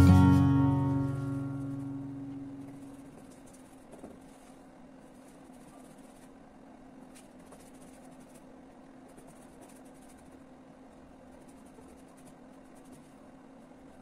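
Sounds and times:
steady low hum: 0:00.0 - 0:14.0
paintbrush scratching on canvas: 0:02.6 - 0:06.4, 0:07.2 - 0:13.4.

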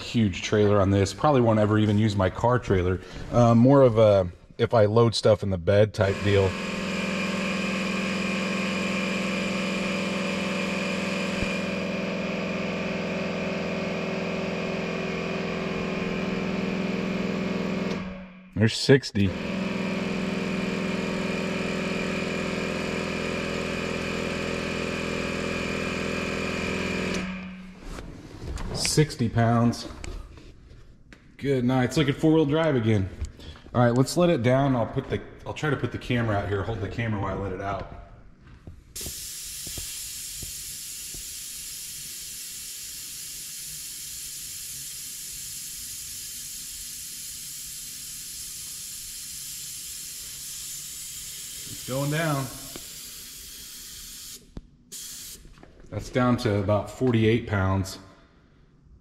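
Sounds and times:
electric air compressor humming: 0:06.0 - 0:18.6, 0:19.2 - 0:28.0, 0:39.0 - 0:55.6
compressed air hissing: 0:39.0 - 0:55.4.

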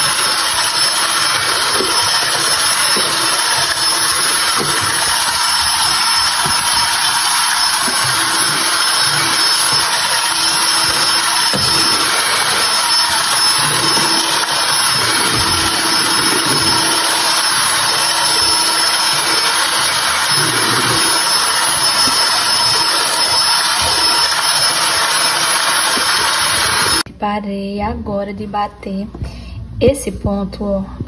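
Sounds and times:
electric hand mixer running: 0:00.0 - 0:27.1.

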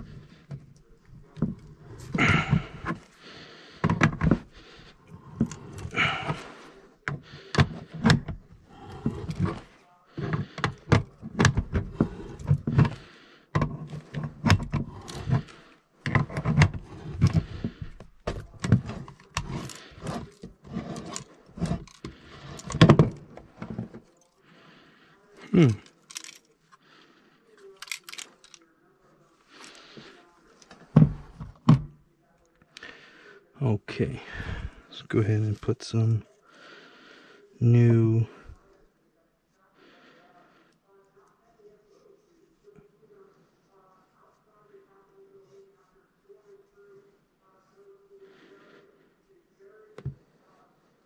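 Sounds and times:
heavy breathing and grunts: 0:00.0 - 0:28.6, 0:32.7 - 0:38.7.

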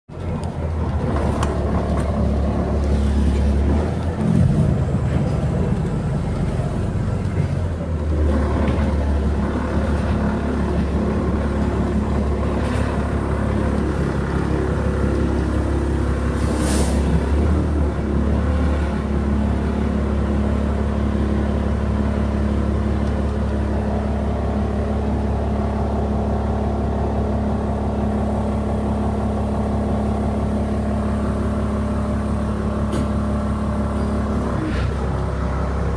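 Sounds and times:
bus engine drone: 0:00.1 - 0:35.9
road rumble: 0:00.1 - 0:35.9
brief hiss: 0:16.4 - 0:17.1.

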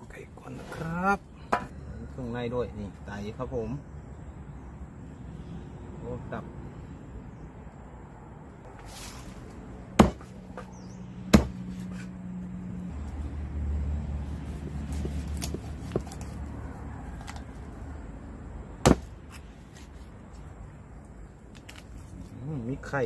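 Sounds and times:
knife chopping on wooden block: 0:10.0 - 0:10.7, 0:11.3 - 0:12.1, 0:14.4 - 0:16.4, 0:18.8 - 0:19.8.

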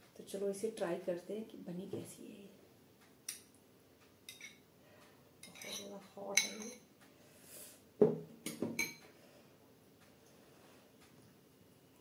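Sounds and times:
metal spoon clinking on glass bowl: 0:04.3 - 0:04.6, 0:05.4 - 0:06.8, 0:08.8 - 0:09.0
heavier knock: 0:08.0 - 0:08.8.

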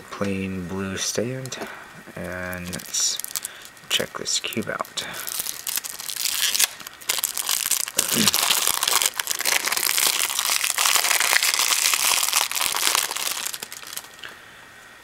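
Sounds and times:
plastic wrapping crinkling: 0:01.3 - 0:14.3.

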